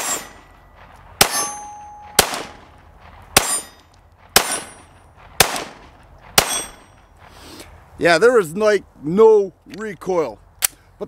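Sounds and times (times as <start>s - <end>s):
pistol shots: 0.0s - 0.6s, 1.2s - 7.0s.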